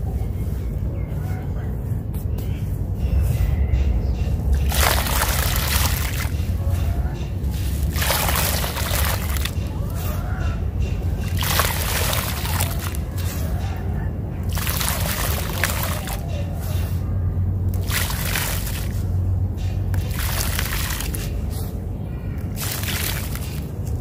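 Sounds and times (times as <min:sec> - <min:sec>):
sand-cement splashing into water: 0:04.6 - 0:06.5, 0:07.6 - 0:09.6, 0:11.3 - 0:13.4, 0:14.4 - 0:16.2, 0:17.7 - 0:19.0, 0:19.9 - 0:21.4, 0:22.6 - 0:23.7.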